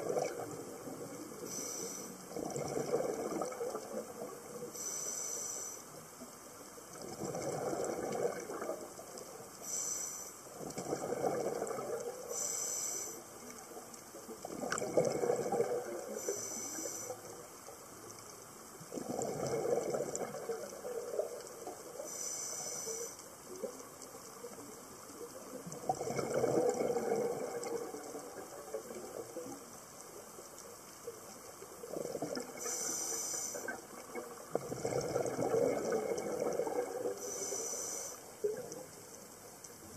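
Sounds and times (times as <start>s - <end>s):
bubbling rush on exhaling: 0.0s - 4.6s, 7.0s - 9.1s, 10.6s - 12.5s, 14.4s - 16.5s, 18.9s - 22.0s, 25.7s - 29.5s, 31.8s - 37.8s
regulator hiss on inhaling: 1.4s - 2.4s, 4.6s - 6.1s, 9.6s - 10.6s, 12.3s - 13.4s, 16.1s - 17.4s, 22.0s - 23.5s, 32.6s - 34.0s, 37.1s - 38.6s.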